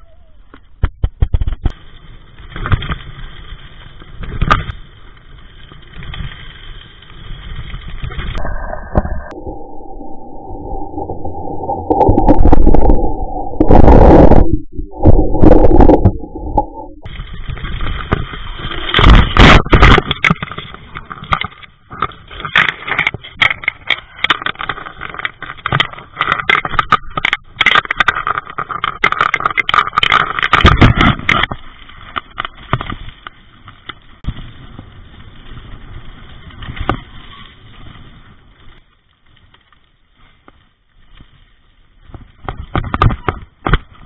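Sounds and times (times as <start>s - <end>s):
wind: 0.0s - 44.0s
bike rattling on gravel: 0.7s - 8.4s, 17.0s - 44.0s.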